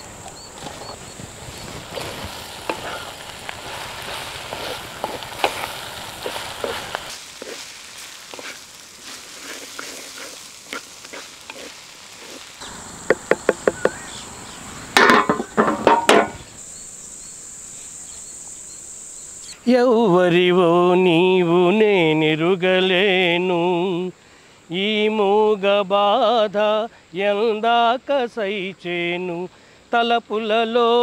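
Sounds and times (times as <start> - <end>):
crickets chirring: 0.0 - 31.0
pan sizzling: 0.1 - 17.6
loud clattering knocks: 13.0 - 14.0, 15.0 - 16.4.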